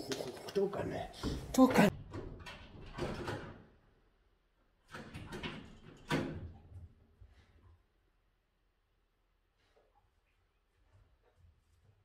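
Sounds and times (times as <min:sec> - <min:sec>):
glass door rattling: 0:02.0 - 0:03.7.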